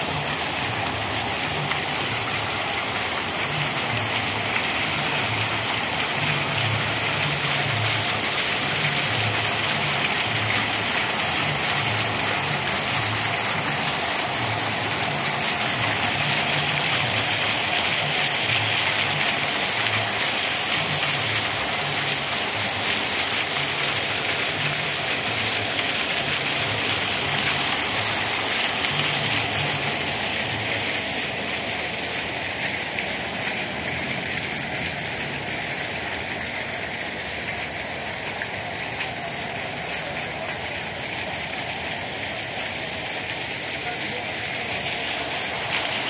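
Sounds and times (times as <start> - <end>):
fountain water splashing: 0.0 - 46.0.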